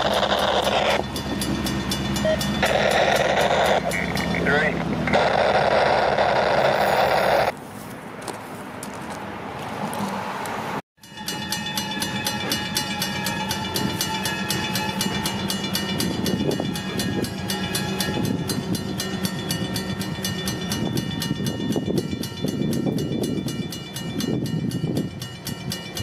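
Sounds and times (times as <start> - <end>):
crossing bell ringing: 0.0 - 5.3, 11.0 - 26.0
diesel locomotive engine: 0.0 - 7.9, 11.0 - 26.0.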